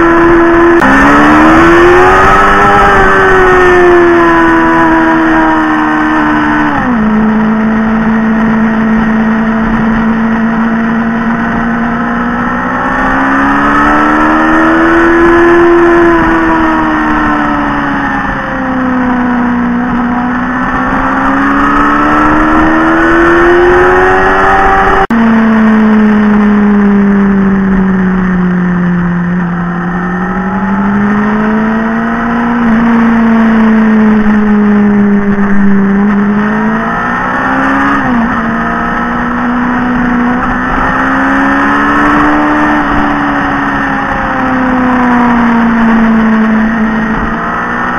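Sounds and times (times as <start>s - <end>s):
motorcycle engine while riding: 0.0s - 47.9s.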